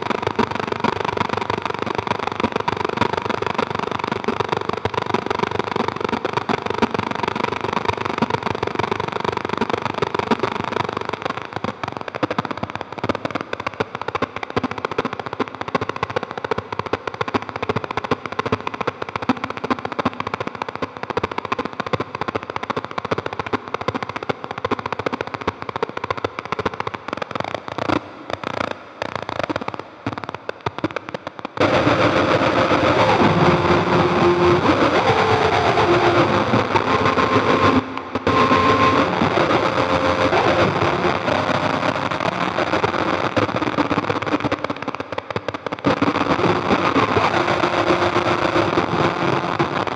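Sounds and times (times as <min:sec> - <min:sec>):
dense rapid crackle of clicks: 0:00.0 - 0:49.9
synthesizer noise drone: 0:31.6 - 0:43.0.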